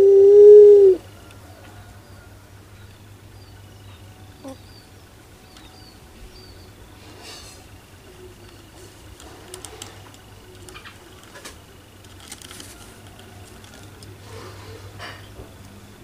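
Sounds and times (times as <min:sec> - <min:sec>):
steady low hum: 0:00.0 - 0:16.0
scratchy rustles: 0:08.5 - 0:15.0.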